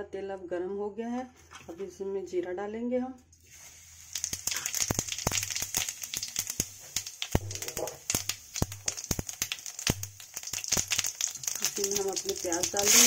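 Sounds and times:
seeds spluttering in hot oil: 0:03.4 - 0:13.0.

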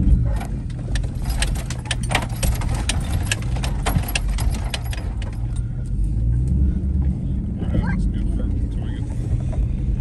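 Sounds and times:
vehicle engine and tyres rumbling: 0:00.0 - 0:10.0
sharp clicks and rattles: 0:00.1 - 0:05.7.

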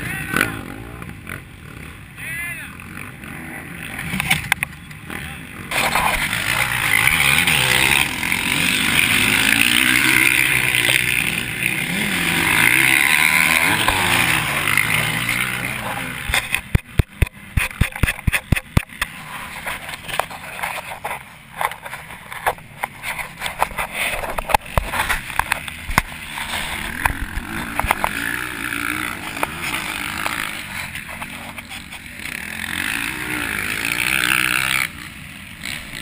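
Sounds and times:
motorcycle engine revving: 0:00.0 - 0:36.0
sharp knocks and clicks: 0:16.2 - 0:19.1.

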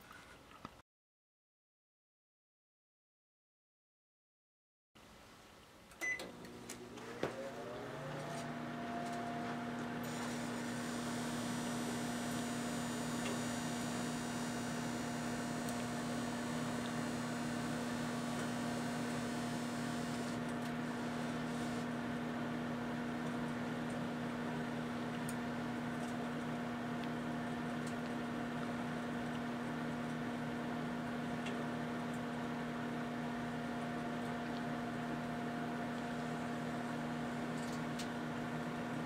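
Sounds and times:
microwave beep: 0:06.0 - 0:06.4
microwave whir and hum: 0:06.0 - 0:39.0.

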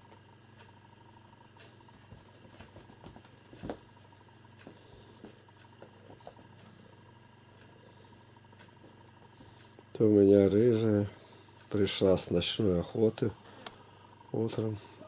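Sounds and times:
low room hum: 0:00.0 - 0:15.0
faint taps and pattering: 0:01.6 - 0:07.8.

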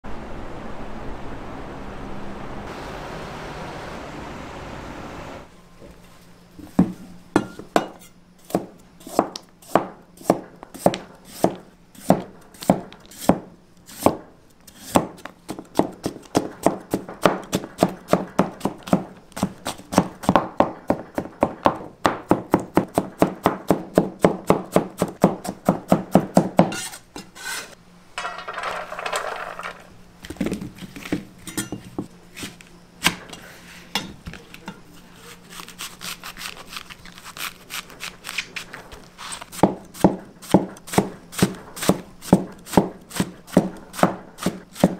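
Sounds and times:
cleaver chopping on plastic board: 0:08.5 - 0:14.2, 0:14.9 - 0:26.8, 0:39.6 - 0:44.9.

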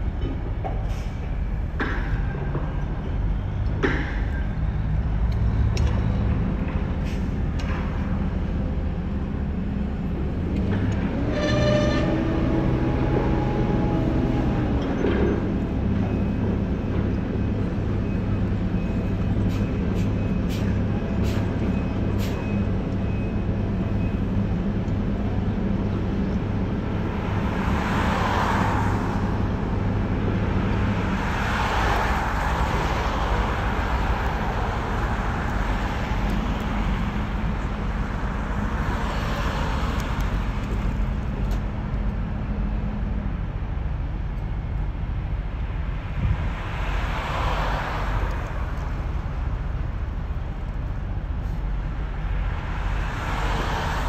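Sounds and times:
road traffic passing: 0:00.0 - 0:54.0.

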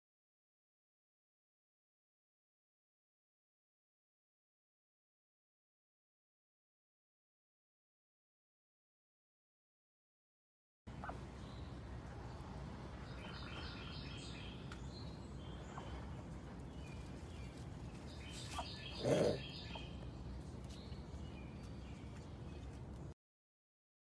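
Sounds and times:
steady low hiss: 0:10.9 - 0:23.1
small birds chirping: 0:10.9 - 0:23.2.

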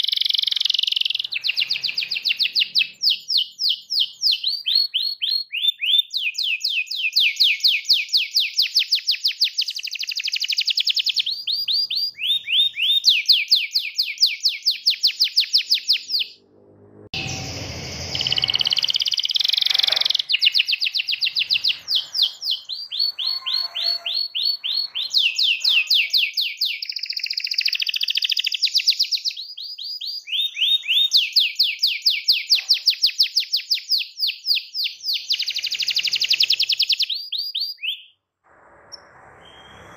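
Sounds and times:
canary singing trills: 0:00.0 - 0:16.4, 0:17.1 - 0:38.2
low rumble: 0:16.3 - 0:19.0.

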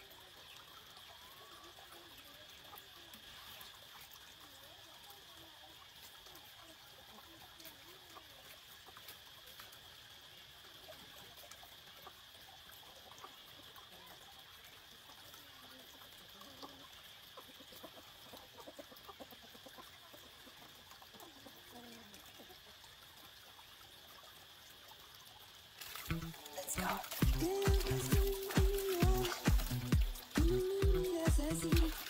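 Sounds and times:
water trickling: 0:00.0 - 0:32.0
chicken clucking: 0:15.0 - 0:22.9, 0:26.1 - 0:32.0
steady high hiss: 0:25.7 - 0:32.0.

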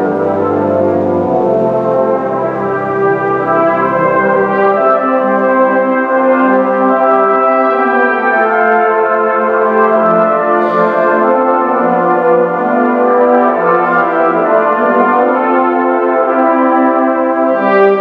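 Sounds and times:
brass band playing chords: 0:00.0 - 0:18.0.

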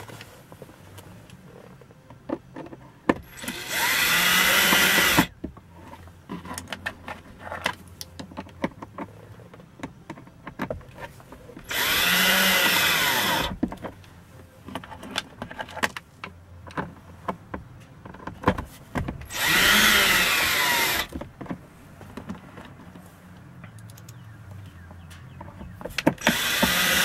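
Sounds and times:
handling clicks and knocks: 0:00.0 - 0:03.3, 0:05.3 - 0:11.7, 0:13.5 - 0:19.3, 0:21.1 - 0:26.8
cordless drill driving screws: 0:03.2 - 0:05.3, 0:11.6 - 0:13.5, 0:19.3 - 0:21.1, 0:26.2 - 0:27.0.

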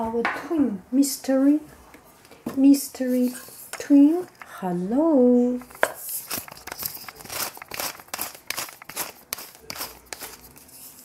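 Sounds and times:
spice mill grinding: 0:05.7 - 0:10.6.

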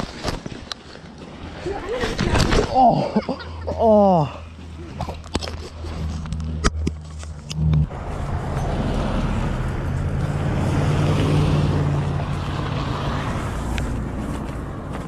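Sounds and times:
truck driving past: 0:07.4 - 0:15.0.

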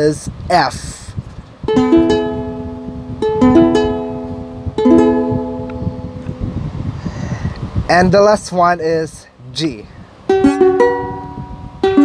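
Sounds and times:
ukulele strumming: 0:01.7 - 0:06.4, 0:10.3 - 0:12.0.

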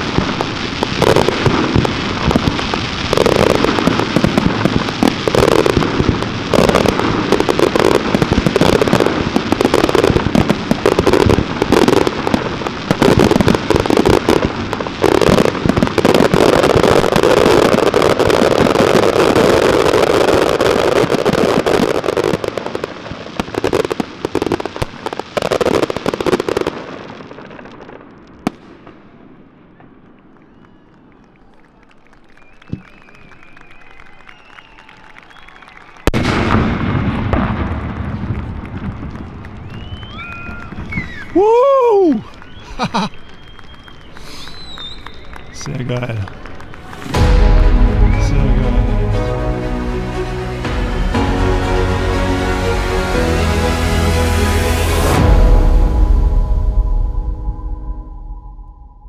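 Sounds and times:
fireworks bursting and crackling: 0:00.0 - 0:59.0
sharp firework bang: 0:36.2 - 0:39.2, 0:46.9 - 0:49.6.

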